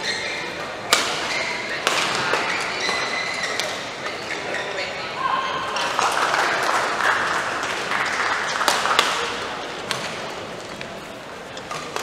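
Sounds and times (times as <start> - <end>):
crowd noise in sports hall: 0.0 - 12.0
people clapping: 5.7 - 9.6.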